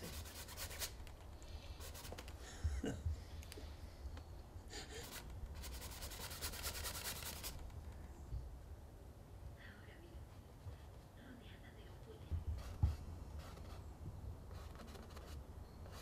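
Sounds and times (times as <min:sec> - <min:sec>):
brush scratching across wooden panel: 0:00.0 - 0:01.1, 0:01.7 - 0:02.4, 0:05.0 - 0:07.6, 0:12.5 - 0:13.9.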